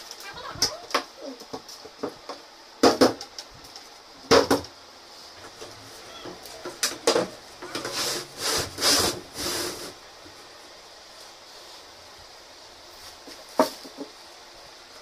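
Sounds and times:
wood rubbing and scraping: 0:05.4 - 0:10.6.

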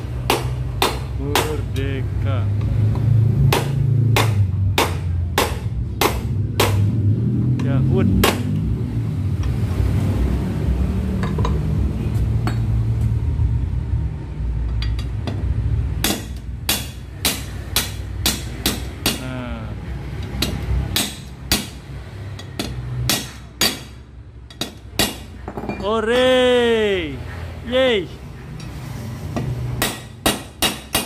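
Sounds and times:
hammer strikes on metal: 0:00.0 - 0:01.8, 0:02.9 - 0:07.0, 0:08.1 - 0:08.7, 0:14.7 - 0:19.4, 0:20.2 - 0:26.4, 0:28.5 - 0:31.0
steady low rumble: 0:00.0 - 0:25.2.

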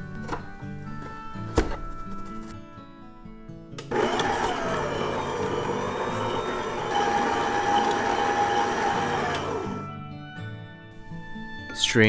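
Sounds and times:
stand mixer motor whine: 0:03.9 - 0:09.9.

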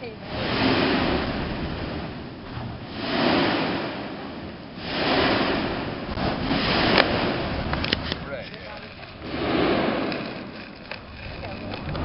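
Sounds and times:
volcanic vents erupting: 0:00.0 - 0:12.0
lava spatter: 0:00.2 - 0:12.0.

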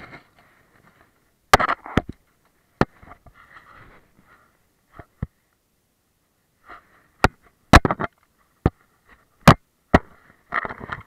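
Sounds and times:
faint rustling: 0:02.2 - 0:05.6.

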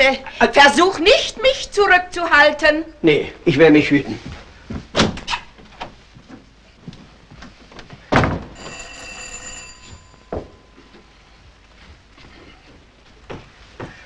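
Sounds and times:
bell ringing: 0:08.6 - 0:11.2.

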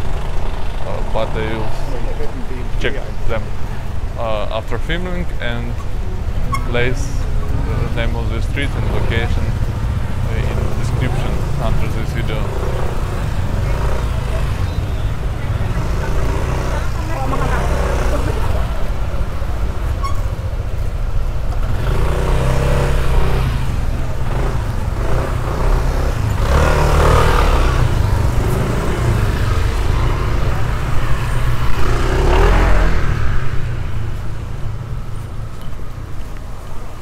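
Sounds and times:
motorbikes and cars driving past: 0:00.0 - 0:37.0.

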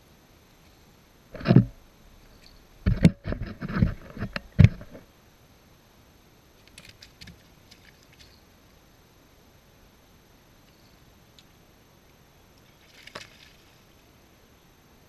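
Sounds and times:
faint small clicks: 0:06.6 - 0:08.8.

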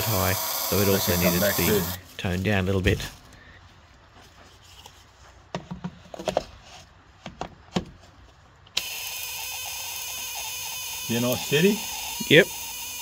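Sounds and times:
coil buzzing: 0:08.8 - 0:13.0.

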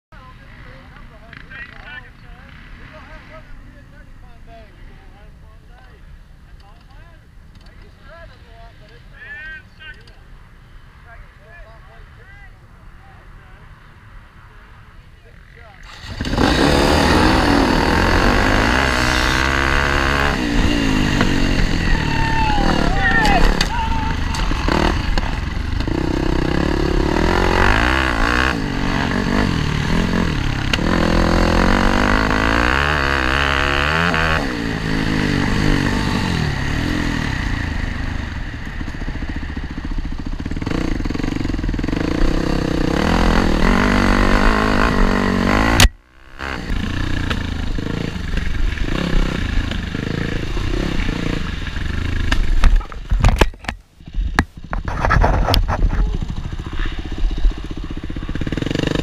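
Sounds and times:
dirt bike engine revving: 0:15.8 - 0:52.7, 0:54.6 - 0:59.0.

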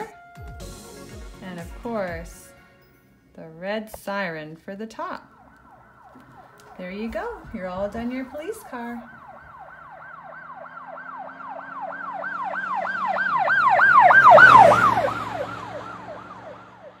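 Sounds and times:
siren yelping: 0:05.0 - 0:17.0
road noise rush: 0:05.2 - 0:17.0.

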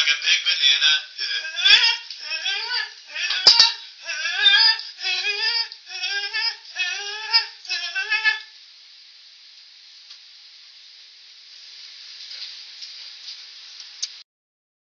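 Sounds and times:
high wordless singing voice: 0:00.0 - 0:08.6
faint steady hiss: 0:00.0 - 0:14.2.

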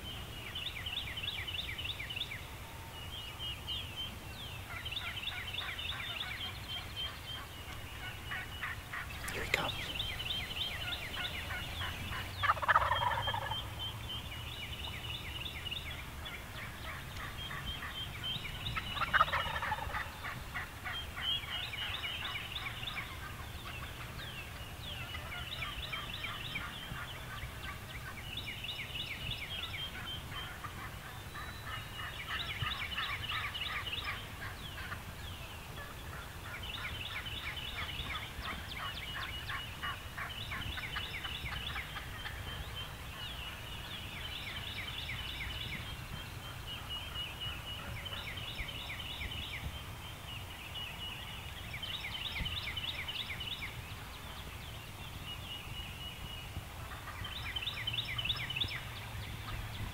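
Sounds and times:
small birds trilling: 0:00.0 - 0:59.9
turkey gobbling: 0:04.7 - 0:13.7, 0:18.8 - 0:23.8, 0:30.0 - 0:35.0, 0:35.8 - 0:43.3.

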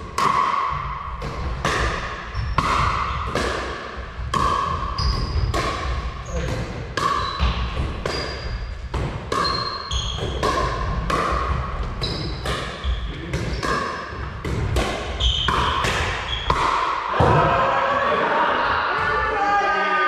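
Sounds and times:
ball bouncing on wooden floor: 0:00.2 - 0:17.4
sneakers squeaking on floor: 0:02.0 - 0:03.4, 0:04.4 - 0:16.8
paddles hitting plastic ball: 0:10.2 - 0:17.0
people talking: 0:17.1 - 0:20.0.

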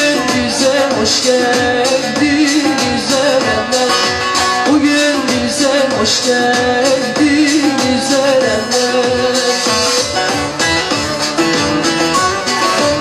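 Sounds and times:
woman singing: 0:00.0 - 0:10.0
long-necked lute strumming: 0:00.0 - 0:13.0.

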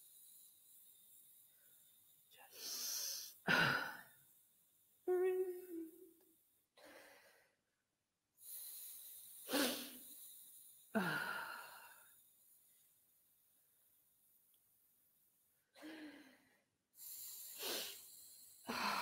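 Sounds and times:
held vocal tone: 0:05.0 - 0:06.2.

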